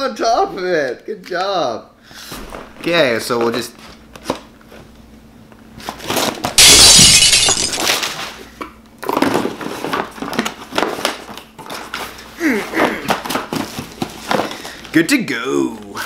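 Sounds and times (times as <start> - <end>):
glass shattering crash: 6.6 - 8.1.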